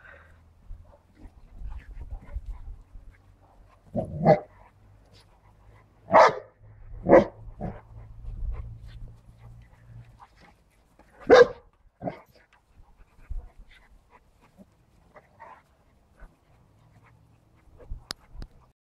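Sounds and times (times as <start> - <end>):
dogs barking: 3.9 - 4.5, 6.0 - 7.8, 11.2 - 12.2.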